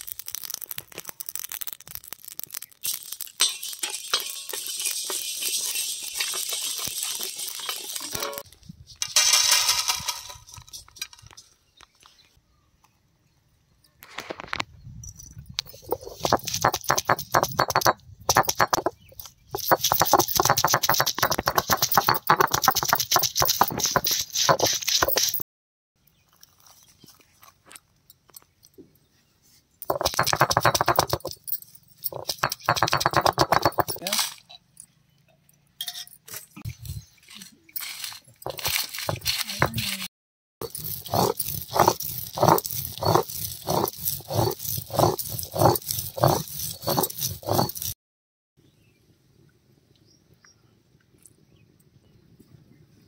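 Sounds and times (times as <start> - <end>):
spices rattling in metal pan: 0.0 - 11.4, 15.7 - 25.4, 29.8 - 34.5, 37.8 - 40.0, 40.6 - 48.0
seeds clinking onto metal plate: 0.0 - 11.5, 15.6 - 25.4, 29.8 - 34.6, 37.4 - 40.0, 40.6 - 48.0
stone roller grinding on stone slab: 3.7 - 8.4, 15.7 - 25.4, 29.8 - 31.4, 32.0 - 34.1, 37.8 - 48.0.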